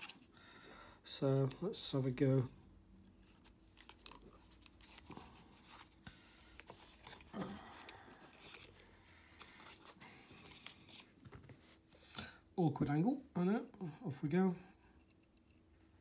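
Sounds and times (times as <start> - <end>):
packaging crinkling: 3.2 - 11.1.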